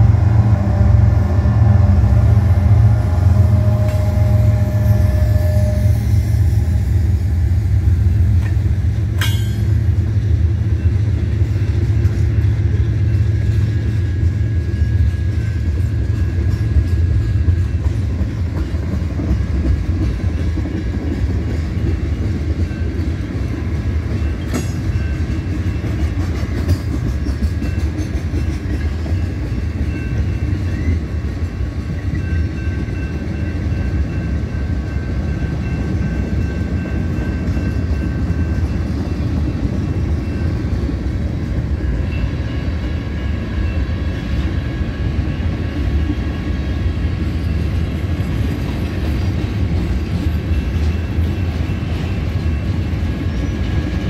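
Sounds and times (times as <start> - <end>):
train wheels rumbling on rail: 0.0 - 54.0
train car clank: 7.9 - 23.2, 24.0 - 30.9.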